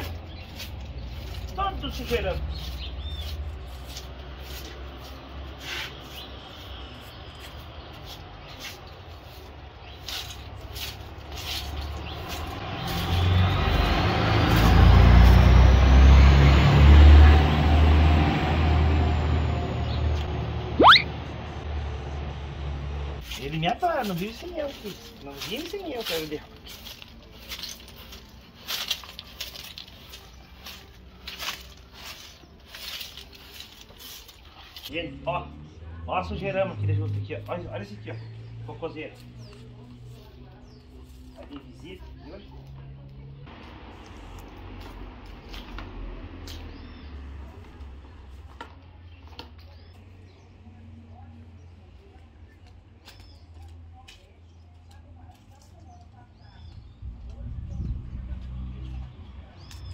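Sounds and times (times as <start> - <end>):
broom scraping on concrete: 0.0 - 17.2, 23.2 - 34.9
dry leaves rustling: 0.0 - 21.0, 21.6 - 59.9
vehicle engine rumble: 0.0 - 59.9
push broom scraping concrete: 7.4 - 15.6
rising engine whine: 12.6 - 23.2.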